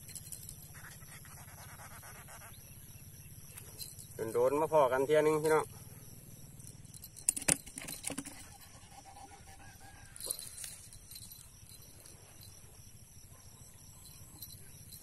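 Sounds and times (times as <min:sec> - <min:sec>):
insects chorus: 0:00.0 - 0:15.0
handling clicks and knocks: 0:06.8 - 0:08.5.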